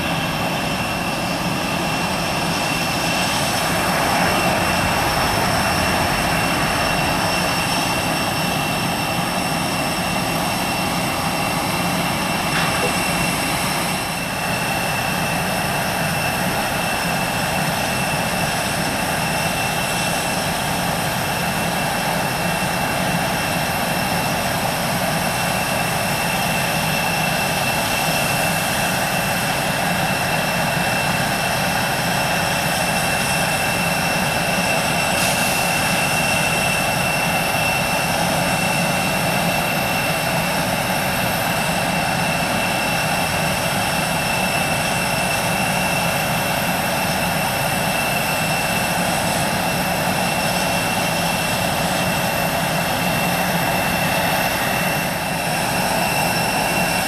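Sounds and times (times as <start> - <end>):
jet engines running: 0.0 - 57.0.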